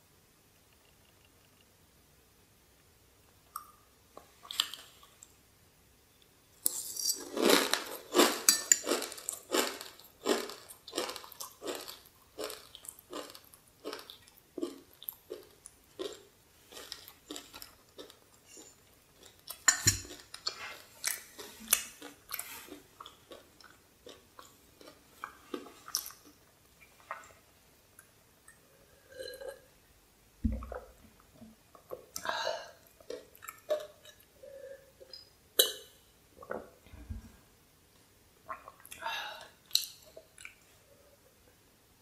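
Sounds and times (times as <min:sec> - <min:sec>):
crunching dry noodles: 0:06.7 - 0:19.4.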